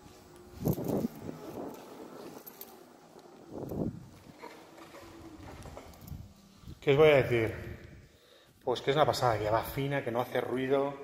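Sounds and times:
electric unicycle rolling: 0.0s - 8.1s.

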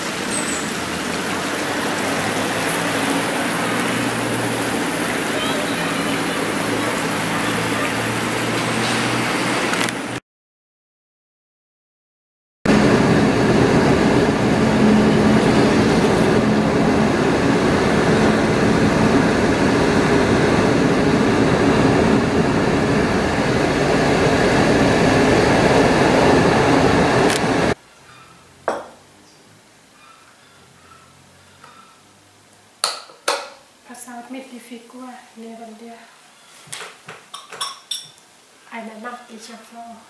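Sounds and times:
car road and engine noise: 0.0s - 10.2s, 12.7s - 32.9s.

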